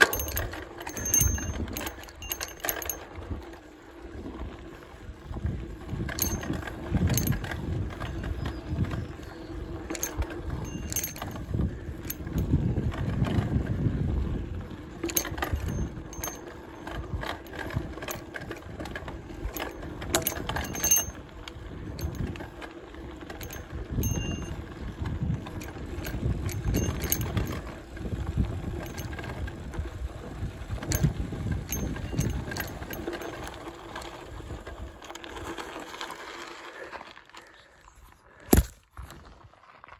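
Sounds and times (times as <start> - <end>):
bike clicking and rattling over bumps: 0.0 - 37.7.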